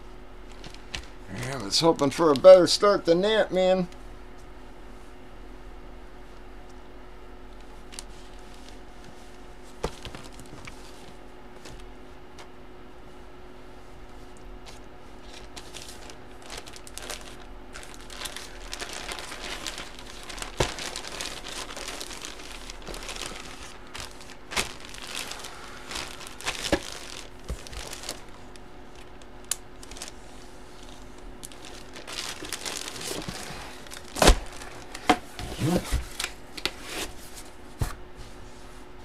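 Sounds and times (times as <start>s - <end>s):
plastic bag crinkling: 9.9s - 10.7s, 15.2s - 35.1s.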